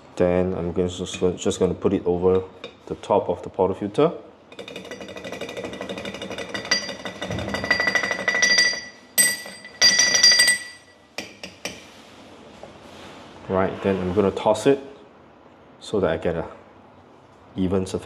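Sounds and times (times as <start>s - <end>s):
ringing metal knocks: 4.5s - 11.8s.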